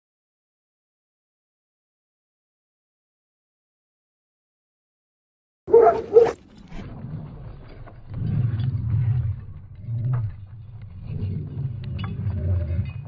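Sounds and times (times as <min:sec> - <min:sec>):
dog paws pounding ground: 0:05.7 - 0:12.0.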